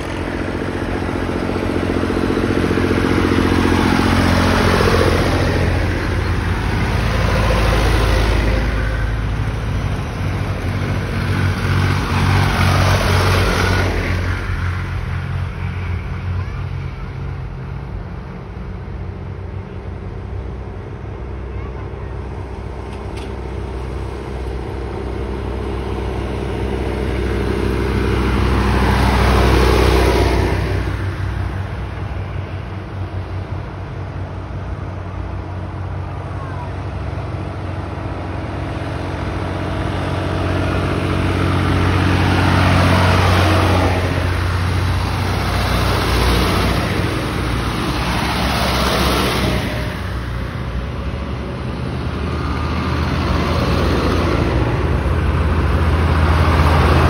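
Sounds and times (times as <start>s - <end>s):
tractor engines passing: 0.0s - 57.0s.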